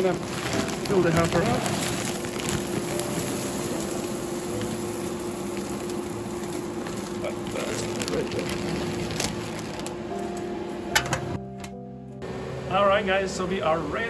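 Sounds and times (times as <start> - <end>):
wooden pellets pouring into hopper: 0.0 - 10.0
steady hum: 0.0 - 14.0.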